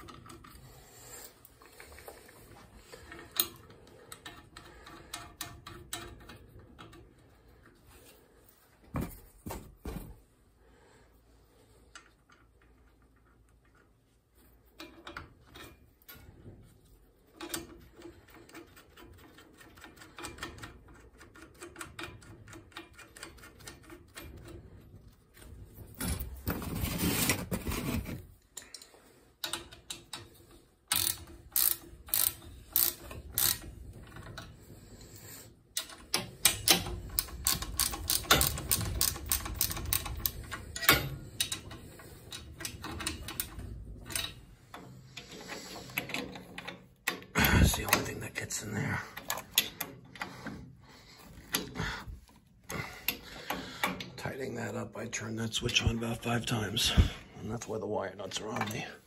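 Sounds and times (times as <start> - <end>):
ratchet wrench clicking: 30.9 - 34.5, 35.1 - 43.5.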